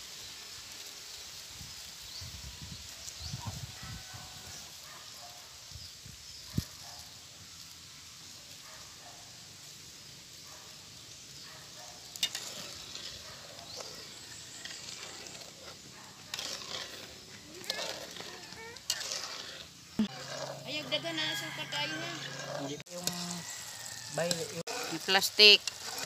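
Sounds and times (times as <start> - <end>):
coconut milk sizzling: 0.0 - 26.0
metal spoon stirring: 11.9 - 26.0.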